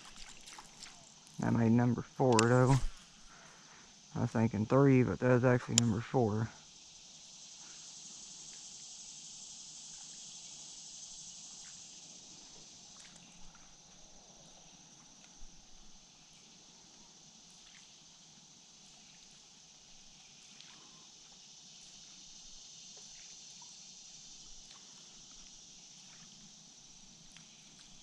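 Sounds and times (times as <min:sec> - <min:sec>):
water trickling around kayak hull: 0:00.0 - 0:01.5
high insect hum: 0:00.0 - 0:28.0.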